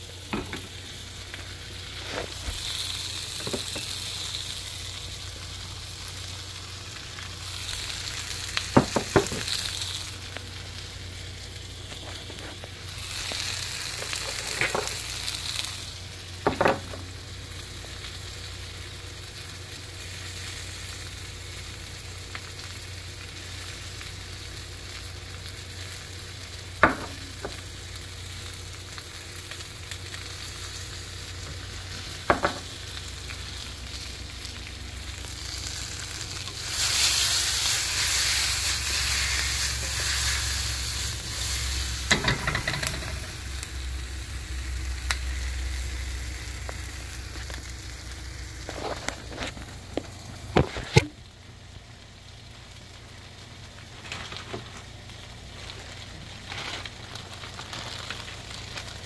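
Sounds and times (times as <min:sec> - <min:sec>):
food sizzling in a frying pan: 0:00.0 - 0:59.0
utensil knocking on pan: 0:08.8 - 0:09.4, 0:32.3 - 0:32.6, 0:42.1 - 0:43.2.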